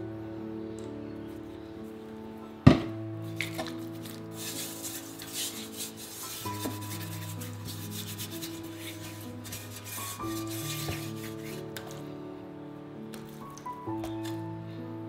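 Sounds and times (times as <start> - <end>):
background music with held chords: 0.0 - 15.0
hands rubbing oil in skillet: 3.4 - 12.0.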